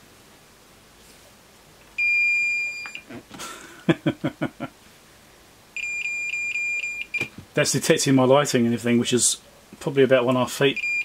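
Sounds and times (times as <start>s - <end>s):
multimeter beeping: 2.0s - 3.1s, 5.8s - 7.3s, 10.7s - 11.0s.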